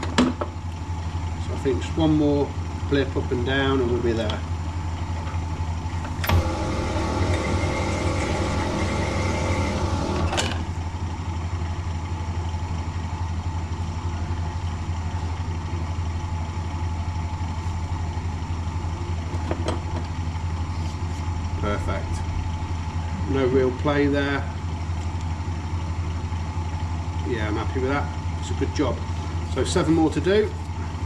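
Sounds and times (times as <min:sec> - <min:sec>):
machine motor humming: 0:05.9 - 0:11.0.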